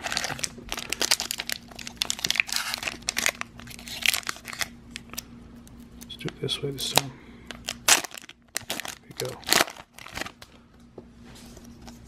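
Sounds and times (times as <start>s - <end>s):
foil wrapper crinkling: 0.0s - 5.2s, 6.2s - 10.5s.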